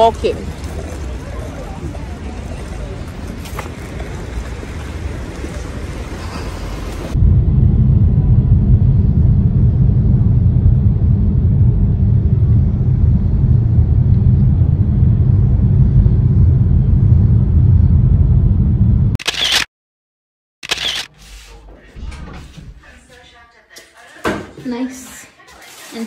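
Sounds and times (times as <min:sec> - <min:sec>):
short burst of noise: 0:19.2 - 0:19.7, 0:20.6 - 0:21.6.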